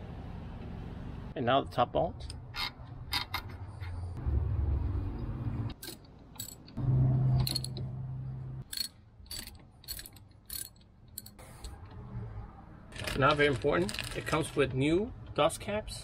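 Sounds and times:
ratchet running: 8.6 - 11.4.

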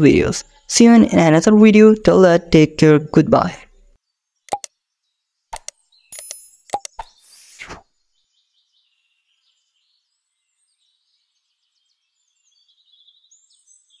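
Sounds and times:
high-pitched chirping: 5.6 - 7.8.

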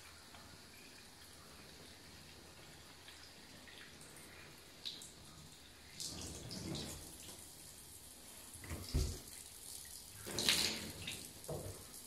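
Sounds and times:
water trickling into a bathtub: 0.0 - 12.0.

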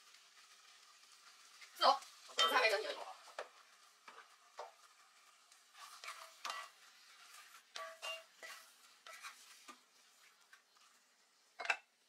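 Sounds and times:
spatula knocking and scraping pan: 2.3 - 11.0.

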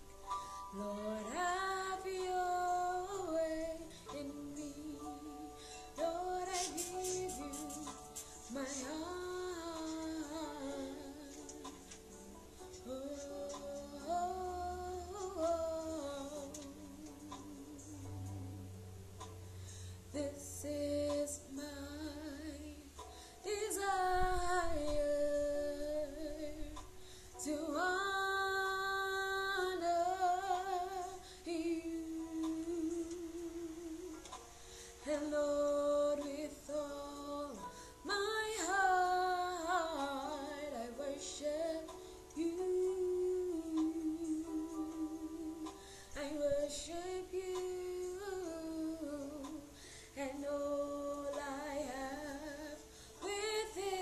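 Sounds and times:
woman singing a worship song: 0.5 - 18.6, 20.1 - 54.0
singer breathing: 5.6 - 6.0, 19.6 - 20.1, 23.0 - 23.4, 27.0 - 27.4, 34.6 - 35.0, 45.8 - 46.2, 49.7 - 50.2, 52.8 - 53.2.

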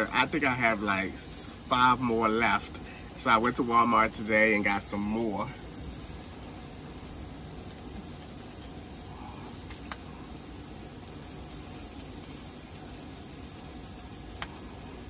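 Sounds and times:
steak sizzling in a frying pan: 0.0 - 15.0.

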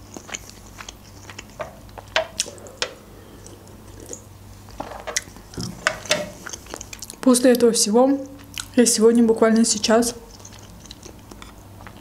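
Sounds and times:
wet mouth chewing: 0.0 - 7.2, 10.2 - 12.0
faint hum: 0.0 - 12.0.

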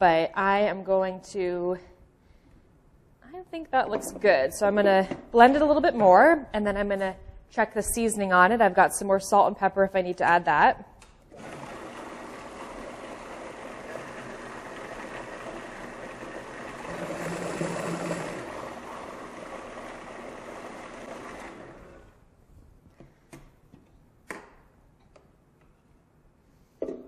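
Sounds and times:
food processor motor running: 11.3 - 22.2.

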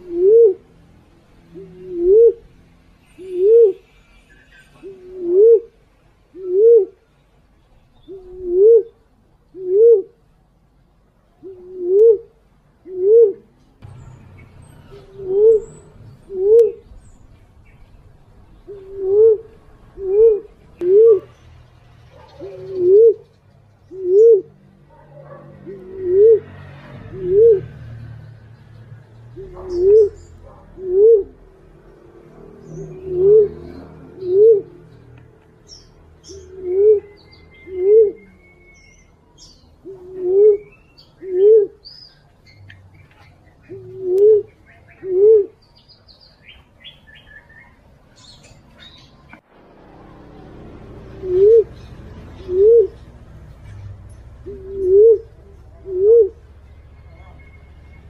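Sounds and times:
dove cooing: 0.0 - 0.7, 1.4 - 4.0, 4.8 - 7.0, 8.1 - 10.2, 11.4 - 13.5, 14.9 - 17.0, 18.6 - 21.4, 22.1 - 28.0, 29.4 - 35.0, 35.8 - 41.9, 43.6 - 45.6, 50.2 - 57.4.

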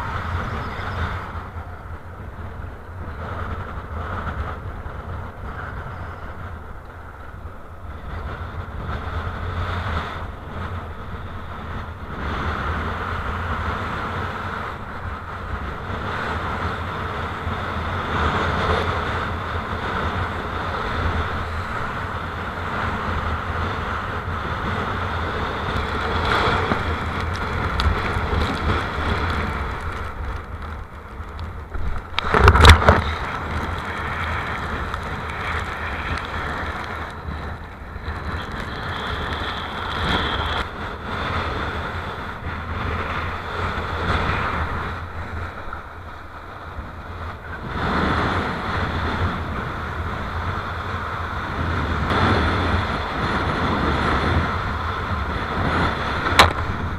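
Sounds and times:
strong wind buffeting microphone: 0.0 - 56.9
water rushing along board: 22.6 - 56.9.

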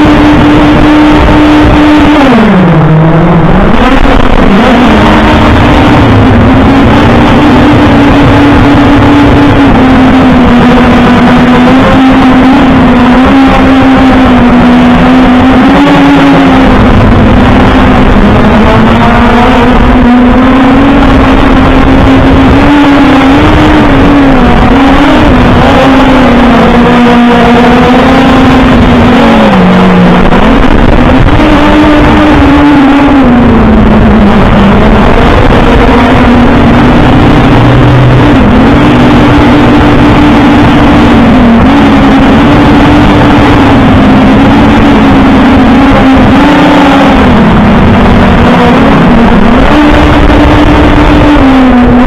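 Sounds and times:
drone propellers buzzing: 0.0 - 52.0
heavy rushing noise: 0.0 - 52.0.

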